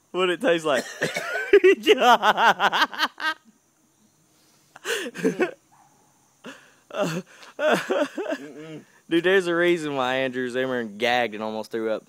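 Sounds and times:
man talking: 0:00.1 - 0:01.2, 0:08.3 - 0:12.0
man's wordless vocal outbursts: 0:06.9 - 0:08.9.

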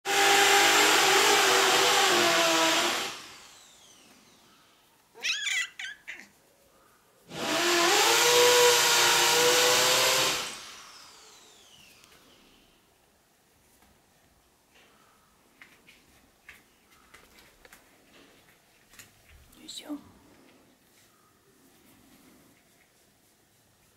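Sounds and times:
electric drill boring into wall: 0:00.1 - 0:04.4, 0:07.3 - 0:12.1
cat meowing: 0:05.1 - 0:06.4.

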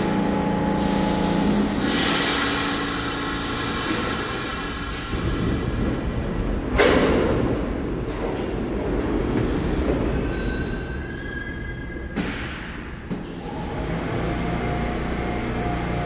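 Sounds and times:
subway train rumbling: 0:00.0 - 0:16.0
air hiss: 0:00.8 - 0:05.4.

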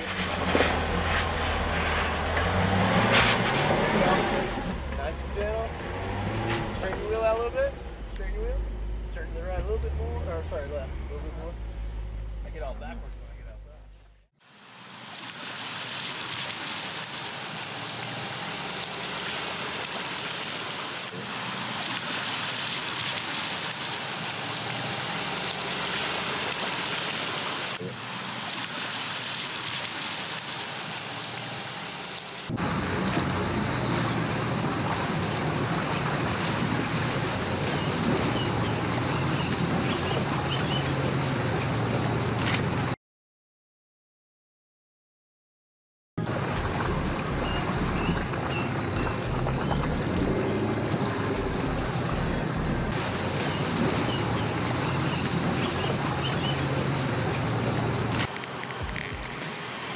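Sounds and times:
water rushing: 0:00.0 - 0:13.1, 0:14.4 - 0:43.0, 0:46.2 - 0:59.9
deep rumble: 0:00.0 - 0:14.3, 0:46.2 - 0:54.2.

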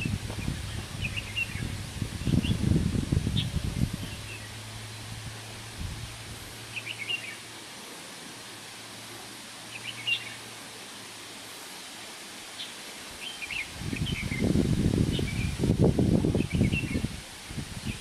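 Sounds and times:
small birds chirping: 0:00.0 - 0:04.6, 0:05.4 - 0:07.5, 0:09.7 - 0:10.5, 0:12.5 - 0:15.6, 0:16.4 - 0:17.1
background hiss: 0:00.0 - 0:18.0.

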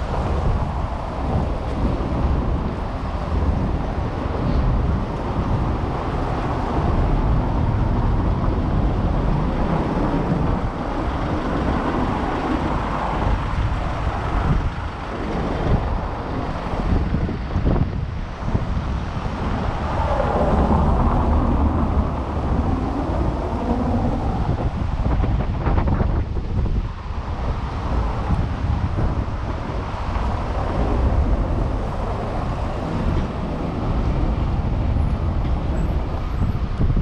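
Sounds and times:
city street traffic rumble: 0:00.0 - 0:37.0
wind buffeting microphone: 0:00.0 - 0:37.0.

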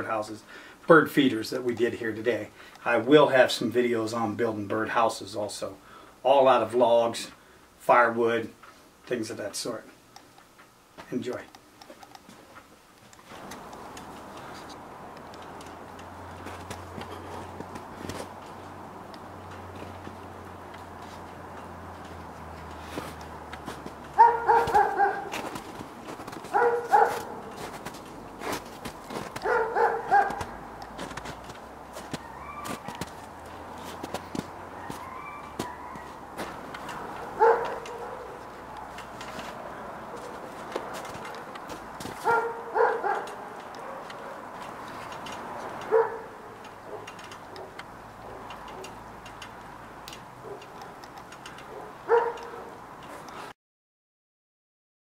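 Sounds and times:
dog barking: 0:24.2 - 0:25.4, 0:26.5 - 0:27.5, 0:29.4 - 0:30.7, 0:34.8 - 0:36.2, 0:37.0 - 0:38.5, 0:42.2 - 0:44.5, 0:45.9 - 0:49.0, 0:50.4 - 0:51.0, 0:51.7 - 0:52.8.

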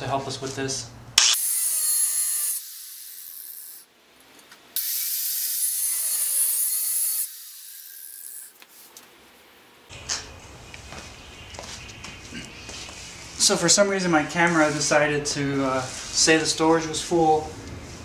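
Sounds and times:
angle grinder cutting steel: 0:01.2 - 0:03.9, 0:04.8 - 0:08.6.

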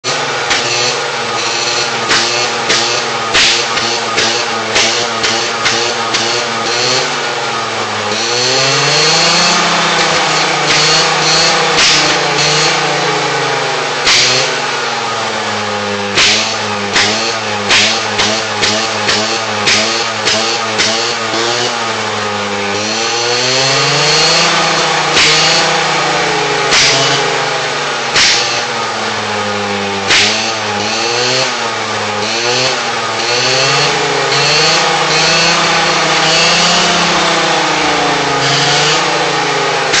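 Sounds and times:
scooter engine revving: 0:00.0 - 0:40.0
exhaust backfire pops: 0:00.4 - 0:07.1, 0:09.2 - 0:12.8, 0:14.0 - 0:14.6, 0:16.1 - 0:21.8, 0:24.1 - 0:25.9, 0:26.6 - 0:27.5, 0:28.1 - 0:28.8, 0:30.0 - 0:31.6.

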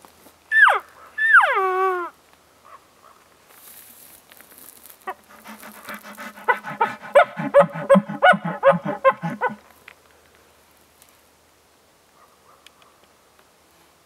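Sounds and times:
elk grunting: 0:05.1 - 0:09.6.

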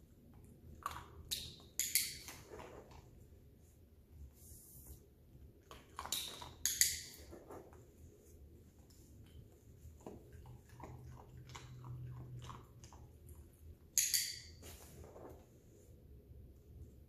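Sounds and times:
dog chewing and crunching treats: 0:09.1 - 0:14.0.

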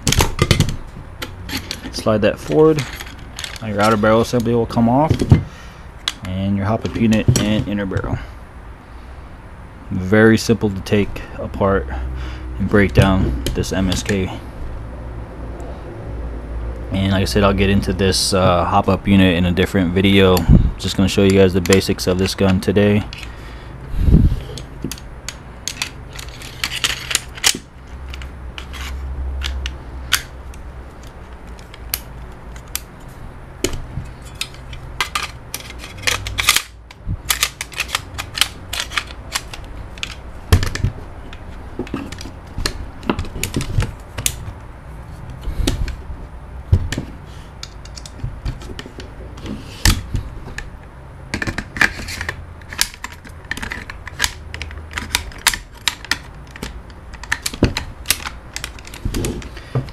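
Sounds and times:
rifle parts clicking and knocking: 0:00.0 - 0:08.1, 0:24.5 - 0:44.6, 0:46.7 - 0:50.7, 0:51.3 - 0:59.9
low steady hum: 0:00.0 - 0:59.9.

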